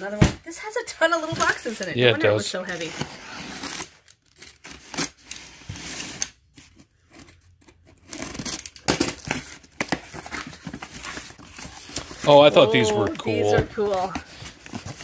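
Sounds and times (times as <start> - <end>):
packaging ripping and crinkling: 3.4 - 6.3, 8.0 - 15.0.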